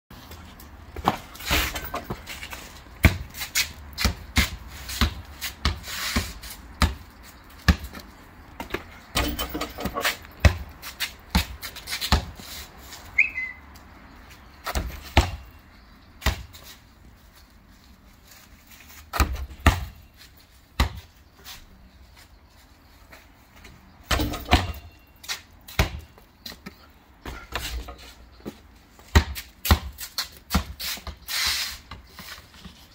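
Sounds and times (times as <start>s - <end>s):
basketball bouncing on concrete: 1.0s - 12.4s, 14.6s - 15.6s, 16.2s - 16.7s, 19.1s - 20.1s, 20.8s - 21.1s, 23.6s - 31.2s.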